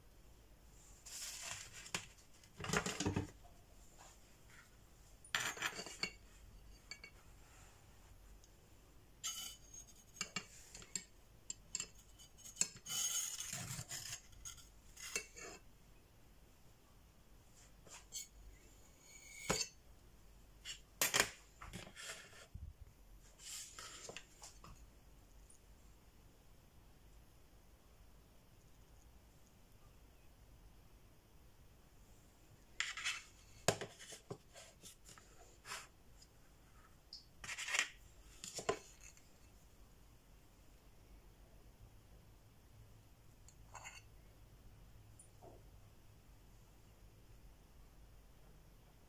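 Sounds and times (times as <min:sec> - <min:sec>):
utensils clinking and scraping on slate: 0:05.2 - 0:07.2, 0:09.2 - 0:15.6, 0:19.0 - 0:19.8, 0:32.8 - 0:35.9, 0:37.4 - 0:39.3
cake server scraping ceramic plate: 0:09.2 - 0:11.0, 0:11.7 - 0:15.6.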